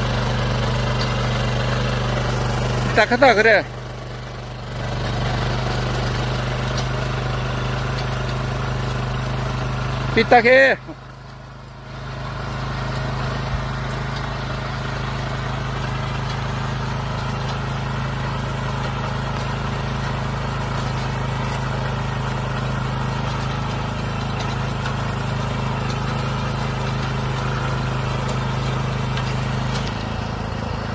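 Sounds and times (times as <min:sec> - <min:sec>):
small engine running under load: 0:00.0 - 0:30.9.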